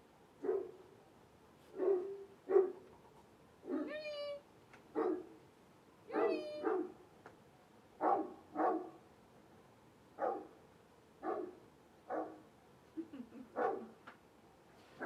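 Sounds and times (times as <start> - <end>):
dog barking: 0.4 - 0.8, 1.7 - 2.8, 4.9 - 5.4, 6.1 - 7.0, 8.0 - 9.0, 10.2 - 10.6, 11.2 - 12.5, 13.6 - 14.0
dog yipping: 6.1 - 6.9, 13.6 - 13.9.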